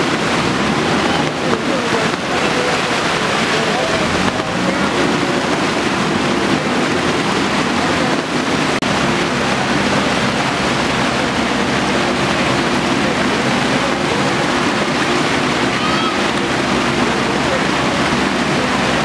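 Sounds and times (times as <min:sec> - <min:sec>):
flood water rushing: 0:00.0 - 0:19.0.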